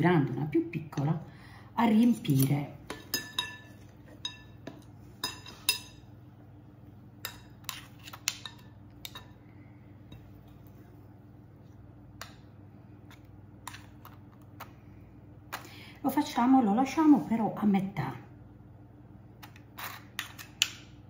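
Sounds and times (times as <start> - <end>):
faint low hum: 0.0 - 21.0
spoons clinking against glass bowl: 2.9 - 6.0.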